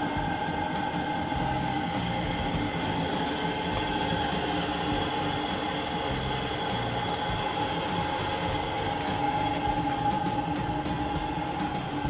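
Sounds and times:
machine motor humming: 0.0 - 12.0
motor whining tones: 0.0 - 12.0.

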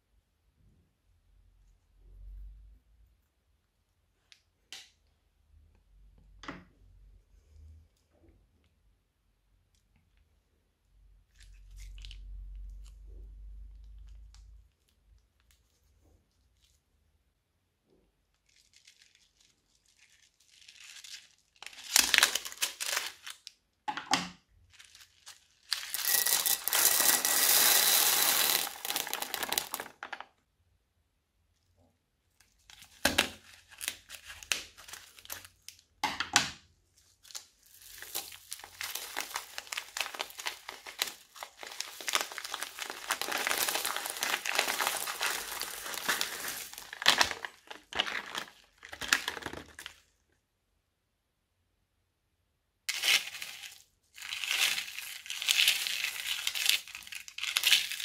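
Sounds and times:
plastic bags crinkling: 18.3 - 23.5, 24.6 - 30.3, 32.6 - 35.8, 37.0 - 50.1, 52.9 - 58.0.

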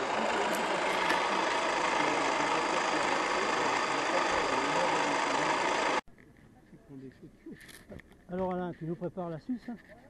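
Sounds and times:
gas burner roaring: 0.0 - 6.0.

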